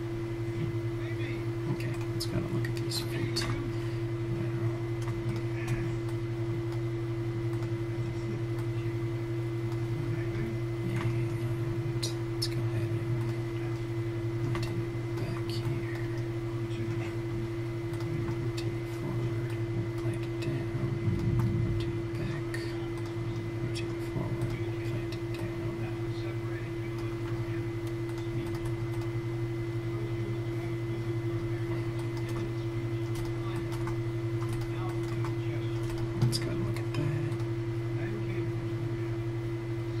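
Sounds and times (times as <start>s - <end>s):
electrical hum: 0.0s - 40.0s
computer mouse clicks: 27.0s - 29.1s.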